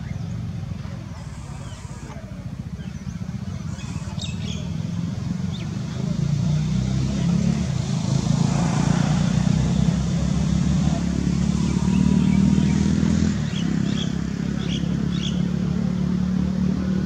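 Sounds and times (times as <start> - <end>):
motor humming: 0.6 - 4.9
bird chirps: 1.1 - 5.8.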